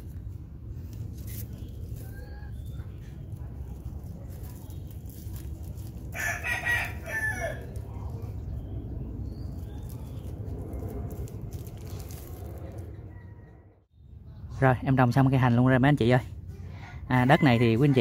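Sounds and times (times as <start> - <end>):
low background rumble: 0.0 - 14.5
rooster crowing: 6.1 - 7.8, 17.1 - 18.0.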